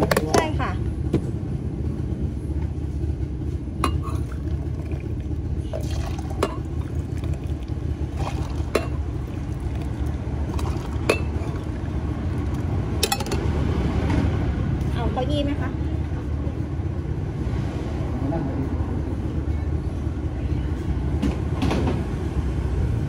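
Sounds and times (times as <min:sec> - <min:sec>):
low background rumble: 0:00.0 - 0:23.0
hot water pouring: 0:03.8 - 0:12.9.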